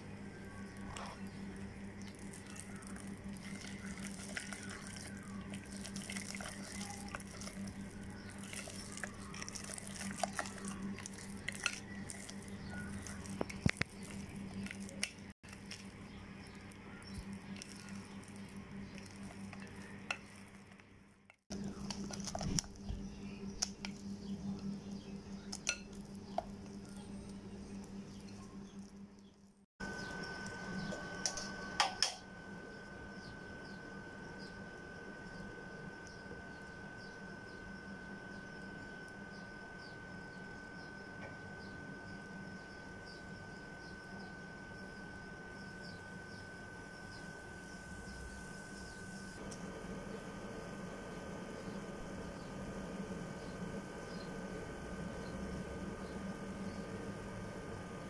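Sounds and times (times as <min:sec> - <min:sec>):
steady low hum: 0:00.0 - 0:58.0
spatula stirring thick batter: 0:00.8 - 0:21.0.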